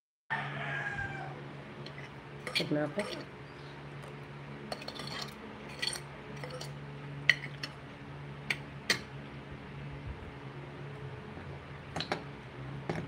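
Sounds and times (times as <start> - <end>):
electric fan humming: 0.3 - 13.0
utensils clinking on dishes: 1.9 - 3.3, 4.7 - 7.7.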